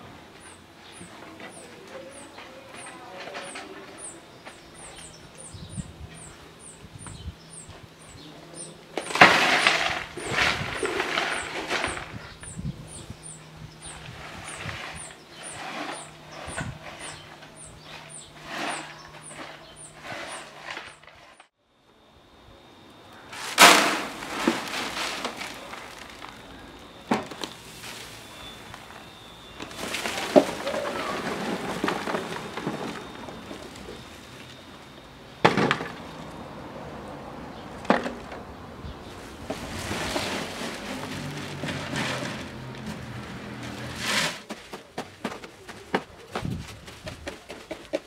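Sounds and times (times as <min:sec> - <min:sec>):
bird chirping: 0:00.4 - 0:09.2, 0:10.1 - 0:21.4, 0:25.3 - 0:35.0
substrate pouring into plastic crate: 0:09.0 - 0:12.2, 0:23.3 - 0:29.0, 0:29.6 - 0:34.2, 0:39.4 - 0:44.5
granules pouring onto wooden tray: 0:23.4 - 0:26.6.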